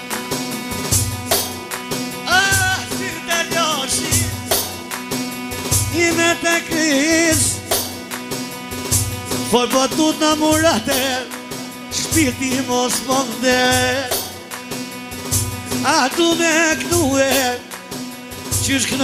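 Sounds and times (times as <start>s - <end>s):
bass: 0.0s - 19.0s
steady drum beat: 0.0s - 19.0s.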